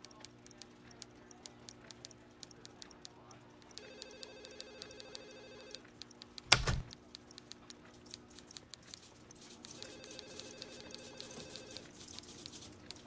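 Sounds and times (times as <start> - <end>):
faint clicks: 0.0 - 13.0
telephone trilling ring: 3.8 - 5.8, 9.8 - 11.9.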